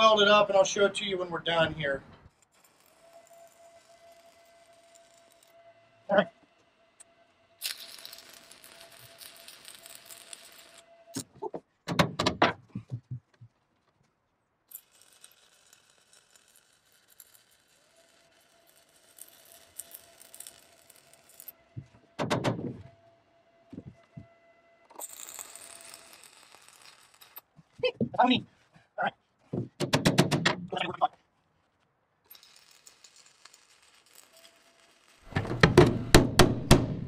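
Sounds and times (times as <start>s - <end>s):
welding arc crackling and hissing: 2.5s - 5.6s, 7.6s - 11.2s, 14.7s - 21.5s, 32.3s - 35.4s
metal knocks and clanks: 11.4s - 13.3s, 21.8s - 22.9s, 29.5s - 30.8s, 35.3s - 37.0s.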